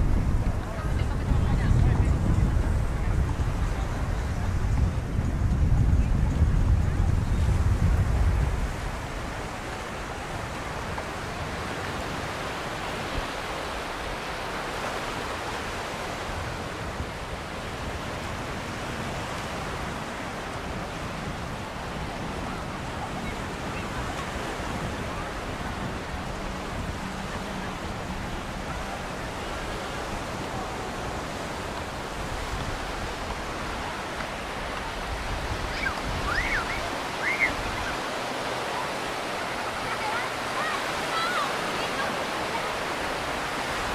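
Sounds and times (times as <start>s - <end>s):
ocean waves breaking on a beach: 0.0s - 43.9s
faint rising and falling calls: 35.7s - 38.0s.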